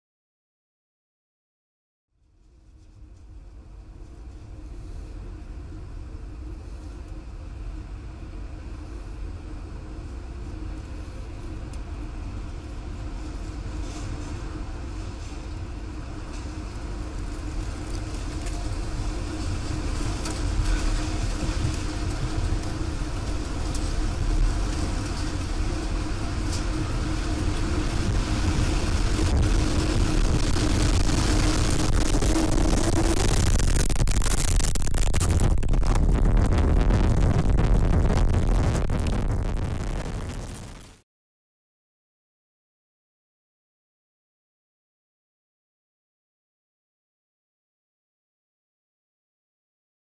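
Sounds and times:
tornado winds rushing: 3.3s - 41.0s.

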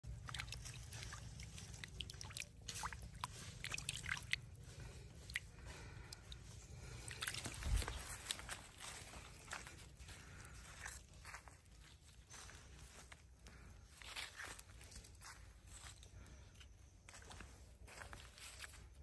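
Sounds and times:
water splashing in stream: 0.1s - 4.6s, 7.0s - 8.4s.

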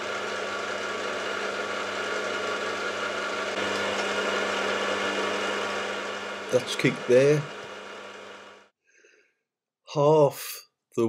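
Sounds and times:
drive whine: 0.0s - 8.7s
milling machine motor hum: 0.0s - 8.7s.

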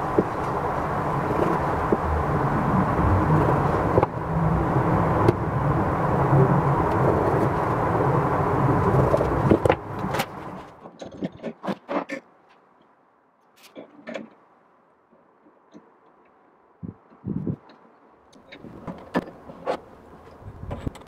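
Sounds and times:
faint high hum: 0.0s - 10.8s
low mechanical rumble: 0.0s - 11.1s, 16.6s - 21.0s.

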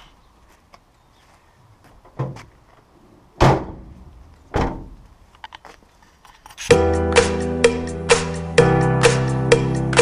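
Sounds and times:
light thud: 3.4s - 5.0s
van doors slamming: 3.4s - 5.0s.

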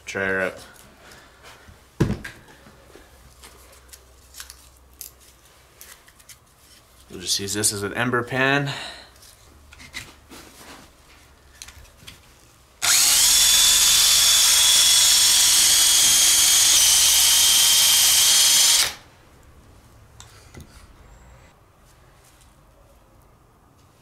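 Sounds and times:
drill motor whine: 12.8s - 19.0s.

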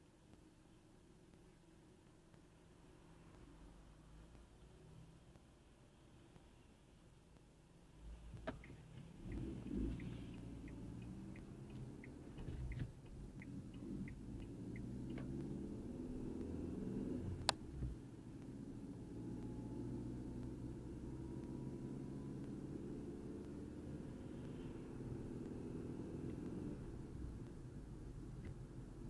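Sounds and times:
turn signal ticking: 7.4s - 29.0s
car engine and road rumble: 7.8s - 29.0s.

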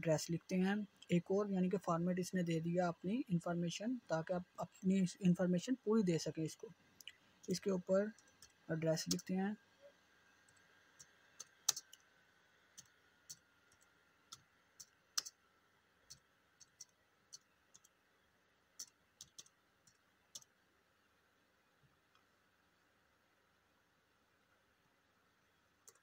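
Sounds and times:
slow keyboard typing: 8.1s - 9.4s, 10.4s - 12.1s, 12.7s - 15.4s, 16.0s - 18.0s, 18.7s - 20.6s, 25.8s - 26.0s.

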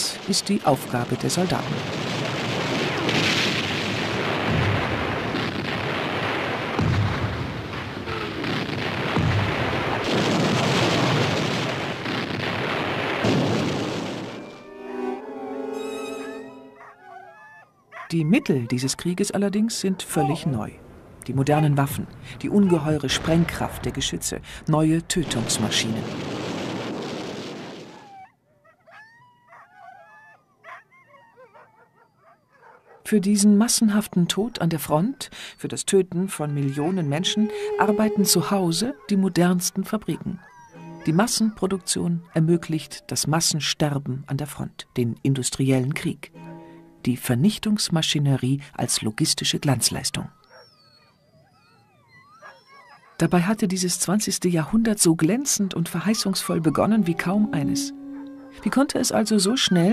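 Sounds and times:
artillery shell explosions: 0.2s - 14.6s, 25.2s - 28.0s
dog whimpering: 14.9s - 20.8s, 27.9s - 33.1s, 36.3s - 43.1s, 50.3s - 53.7s, 55.7s - 59.9s.

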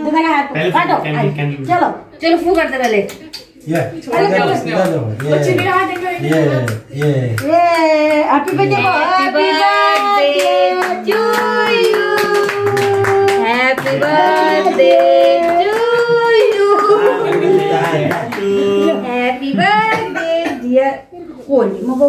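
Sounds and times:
voices singing together: 3.7s - 20.7s
hand clapping in time: 4.8s - 8.8s, 9.9s - 18.6s.

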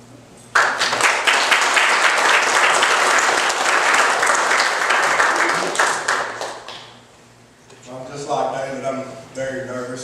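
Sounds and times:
crowd applauding: 0.6s - 7.0s.

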